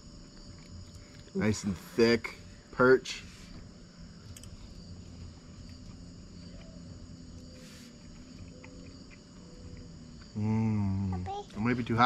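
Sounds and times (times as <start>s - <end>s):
crickets chirring: 0.0s - 12.0s.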